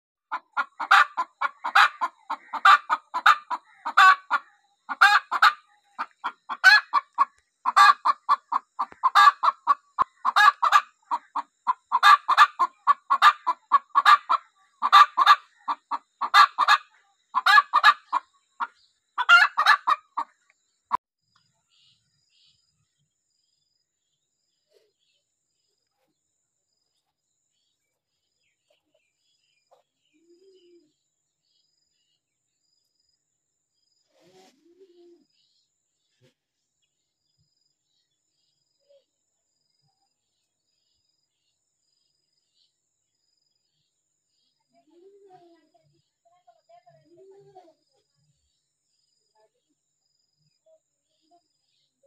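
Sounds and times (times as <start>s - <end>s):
hen cackling and clucking: 0.2s - 20.4s.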